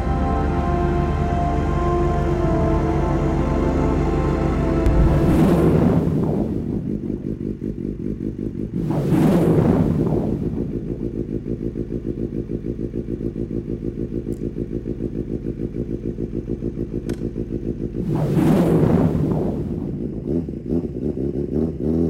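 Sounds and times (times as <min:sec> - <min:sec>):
motorcycle engine idling and revving: 0:00.0 - 0:18.1, 0:18.8 - 0:22.0.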